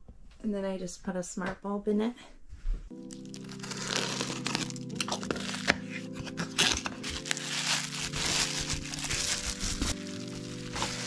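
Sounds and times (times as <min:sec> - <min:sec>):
background music: 0:02.9 - 0:11.0
plastic packaging crinkling: 0:02.9 - 0:11.0.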